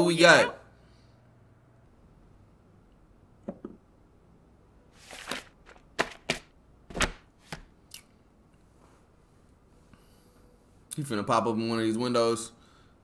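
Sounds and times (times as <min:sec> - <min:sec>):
paper rustle: 0:05.0 - 0:06.3.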